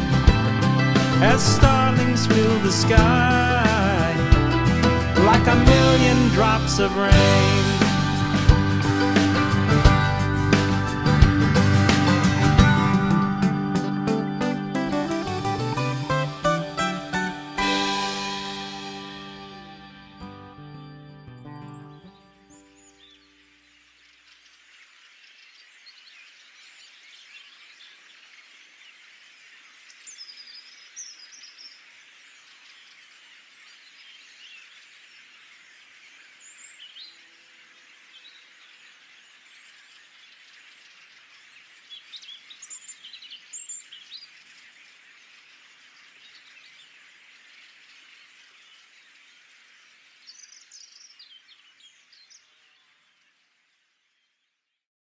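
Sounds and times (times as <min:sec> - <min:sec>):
starlings chattering: 0:00.0 - 0:25.9.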